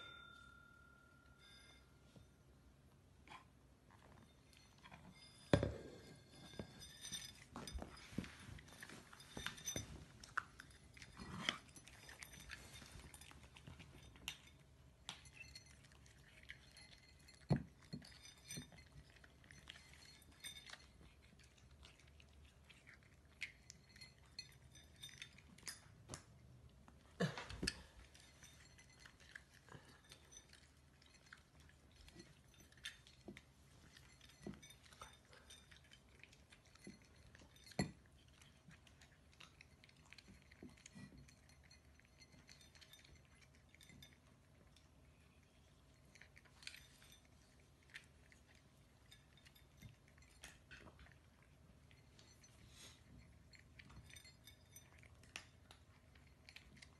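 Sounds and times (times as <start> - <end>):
kibble clinking against bowls: 0.0 - 2.6, 3.4 - 56.9
cats crunching kibble: 18.9 - 23.9.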